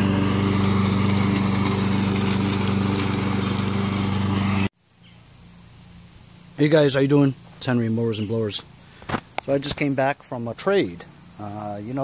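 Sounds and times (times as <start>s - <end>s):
lawn mower engine running: 0.0s - 4.7s.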